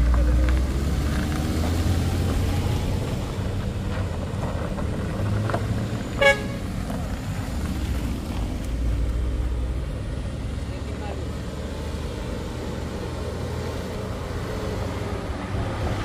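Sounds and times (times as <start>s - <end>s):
short horn toot: 6.2s - 6.6s.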